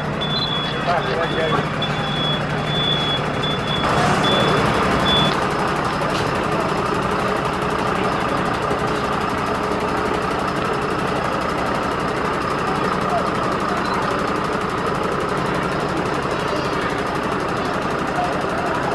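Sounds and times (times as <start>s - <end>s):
reversing alarm beeps: 0.0s - 5.4s
truck engine running: 0.0s - 18.9s.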